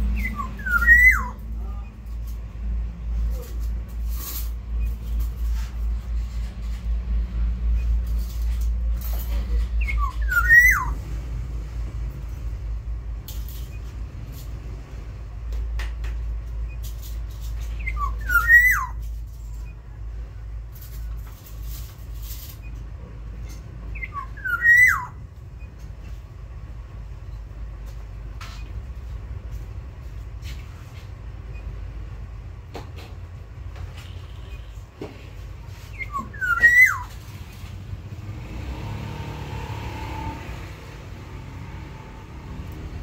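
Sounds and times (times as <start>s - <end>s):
bird singing fluty whistle: 0.2s - 1.4s, 9.8s - 11.0s, 17.8s - 19.0s, 24.0s - 25.2s, 35.9s - 37.1s.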